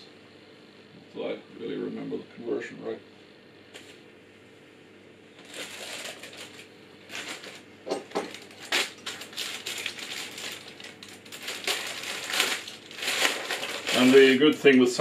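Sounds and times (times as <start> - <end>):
plastic packaging crinkling: 5.4 - 15.0.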